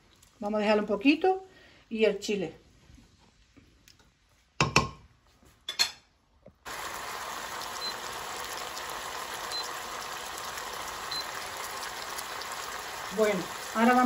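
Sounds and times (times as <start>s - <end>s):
prawns sizzling in a frying pan: 6.7s - 14.0s.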